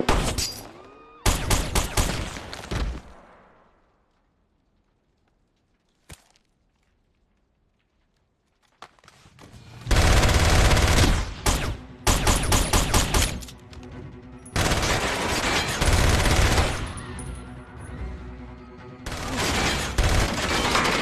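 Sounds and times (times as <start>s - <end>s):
automatic gunfire: 9.9s - 13.4s.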